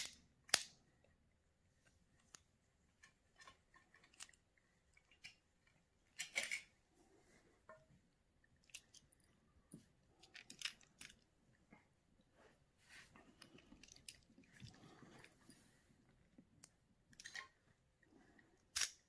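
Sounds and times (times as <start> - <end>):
toy plastic clicks and rattles: 3.0 - 6.7, 8.6 - 9.2, 10.1 - 11.3, 16.6 - 17.6, 18.6 - 19.0.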